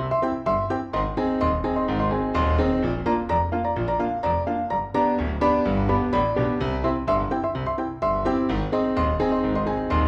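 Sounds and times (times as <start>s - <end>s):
piano notes: 0.0s - 10.0s.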